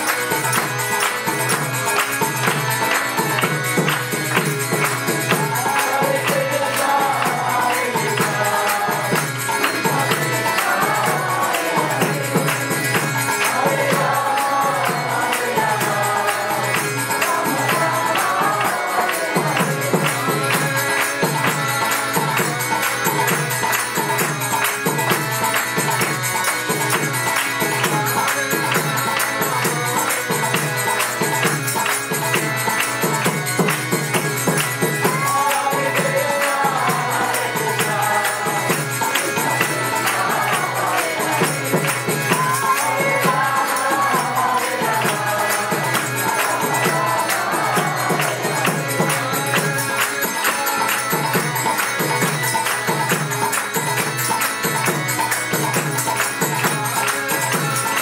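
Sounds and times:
jingling hand percussion: 0.0s - 58.0s.

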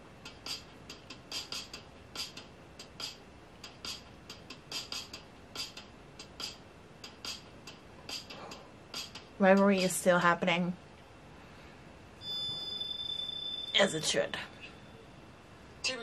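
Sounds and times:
sharp clock-like ticking: 0.2s - 9.9s.

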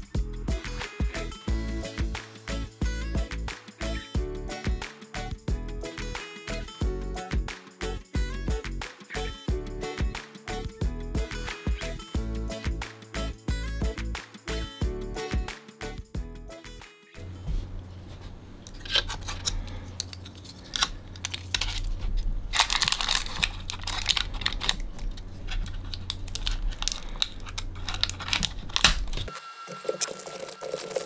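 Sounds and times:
low steady hum: 17.2s - 29.4s
tissue paper crinkling and tearing: 18.8s - 29.3s, 29.9s - 31.0s.

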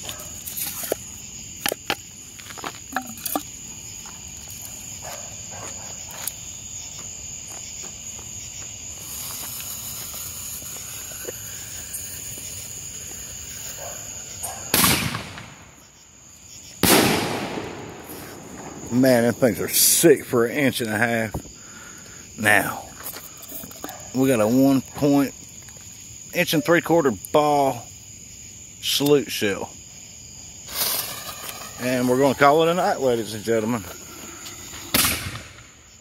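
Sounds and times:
crickets chirping: 0.0s - 36.0s
fuse hiss: 8.8s - 13.8s
firework mortar thump: 14.7s - 15.7s, 16.8s - 19.0s.

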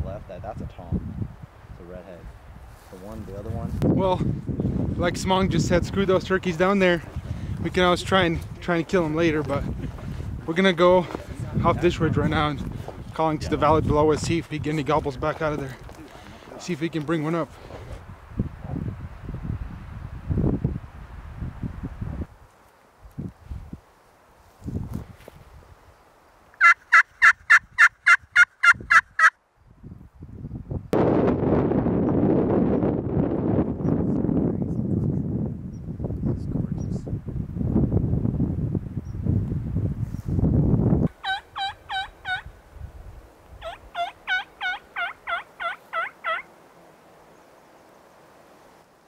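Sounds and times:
turkey call hen yelps: 26.6s - 29.4s, 41.2s - 42.5s, 43.6s - 46.5s.

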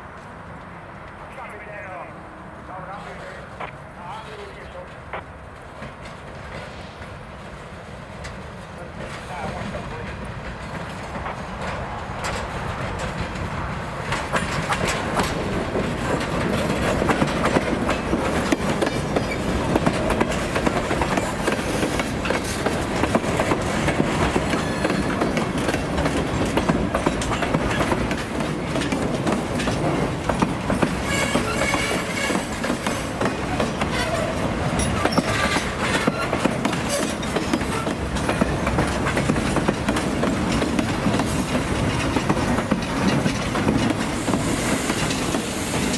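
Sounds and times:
train wheels rumbling on rail: 0.0s - 45.9s
wheels clattering over rail joints: 8.2s - 45.9s.

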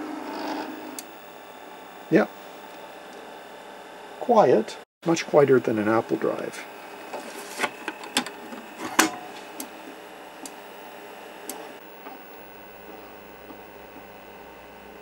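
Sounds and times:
floppy disk whirring: 0.0s - 15.0s
drive read head clicking: 5.9s - 15.0s.

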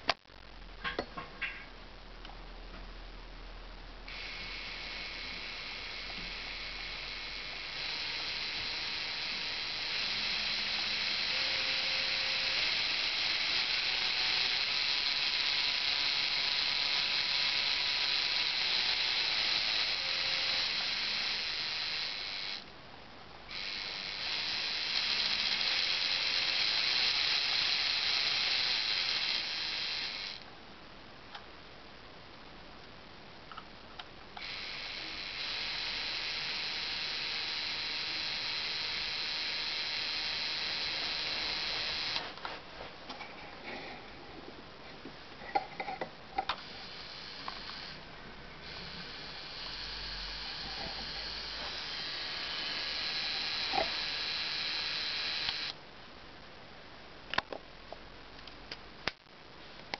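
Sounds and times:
toy motor and gears whirring: 4.1s - 22.6s, 23.5s - 30.4s, 34.4s - 42.4s, 46.4s - 48.0s, 48.6s - 55.8s.

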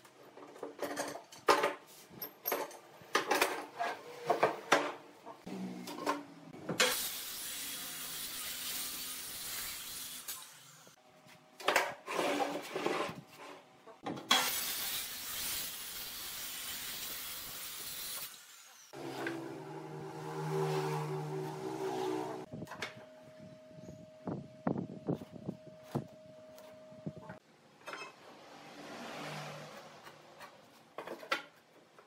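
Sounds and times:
circular saw cutting wood: 14.3s - 22.5s.

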